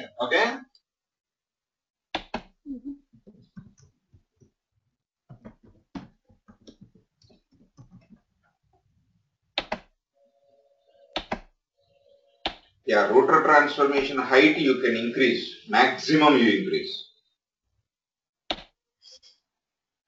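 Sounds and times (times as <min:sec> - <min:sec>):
keyboard typing clicks: 0:02.2 - 0:02.5, 0:09.6 - 0:09.9, 0:11.1 - 0:11.5.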